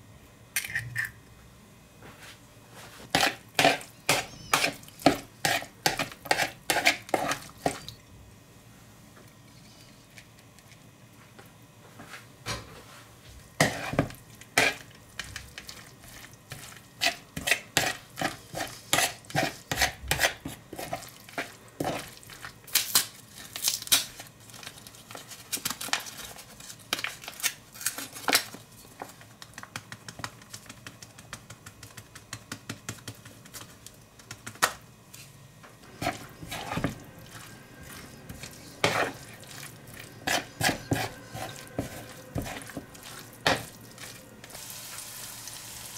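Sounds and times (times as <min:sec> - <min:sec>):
spoon stirring in plastic bowl: 0:03.0 - 0:08.0, 0:13.6 - 0:22.6, 0:28.0 - 0:44.6.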